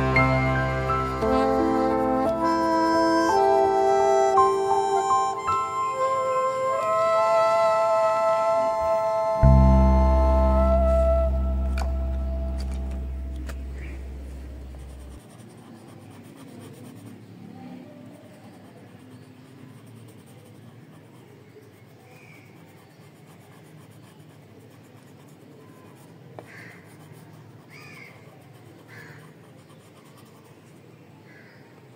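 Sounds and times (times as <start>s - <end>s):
pencil scratching on paper: 15.1s - 17.4s, 18.2s - 30.9s.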